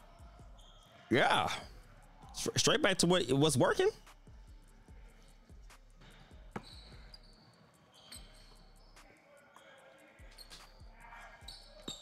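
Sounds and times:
short high squeaks: 0:06.6 - 0:09.0, 0:10.3 - 0:10.8, 0:11.4 - 0:12.0.

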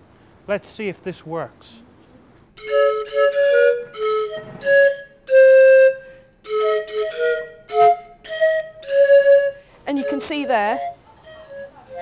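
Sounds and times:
flute-like melody: 0:02.5 - 0:12.0.

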